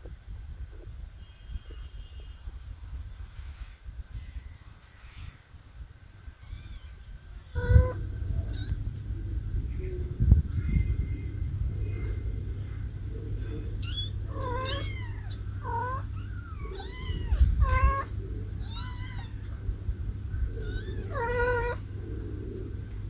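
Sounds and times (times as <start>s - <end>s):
low rumble: 2.7s - 23.0s
kittens meowing: 6.2s - 9.1s, 13.4s - 22.6s.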